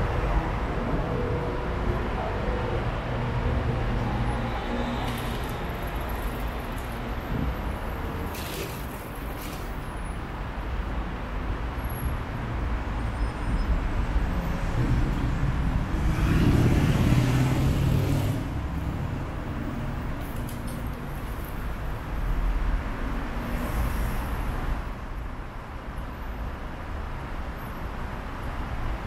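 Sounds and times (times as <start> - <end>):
road traffic noise: 0.0 - 29.0
vehicle rumbling past: 14.4 - 20.0.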